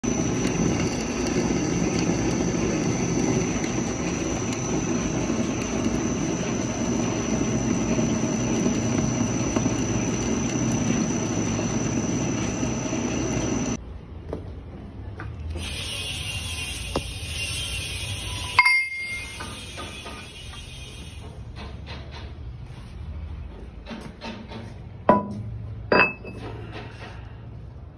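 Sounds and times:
metal lathe cutting with whine: 0.0s - 13.8s.

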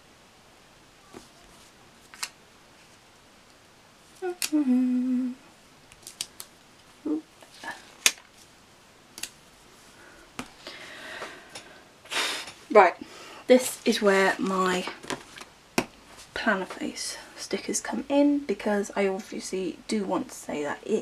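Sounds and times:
person humming: 4.2s - 5.5s, 7.0s - 7.8s
sticker clicks and paper rustles: 5.9s - 6.5s.

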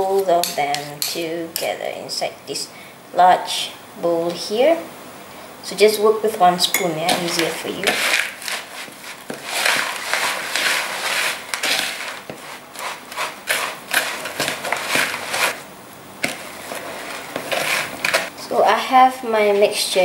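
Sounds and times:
spoon scraping plastic bowl: 6.8s - 18.3s.

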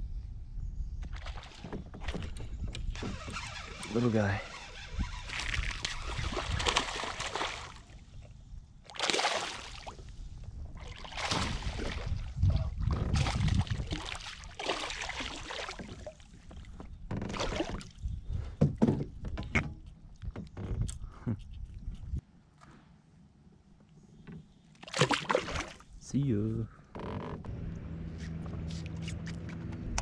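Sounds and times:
water splashing around boat: 1.1s - 8.1s, 8.9s - 18.1s, 24.8s - 25.9s.

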